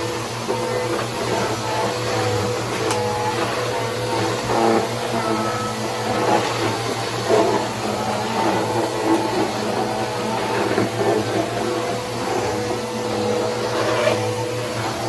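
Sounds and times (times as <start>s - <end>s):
upright vacuum cleaner running: 0.0s - 15.0s.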